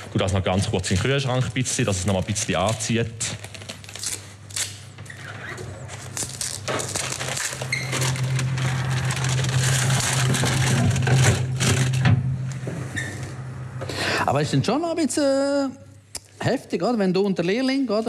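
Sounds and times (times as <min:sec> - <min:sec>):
dry onion skin crackling: 0:00.0 - 0:05.0, 0:05.8 - 0:12.0
low steady hum: 0:00.0 - 0:17.0.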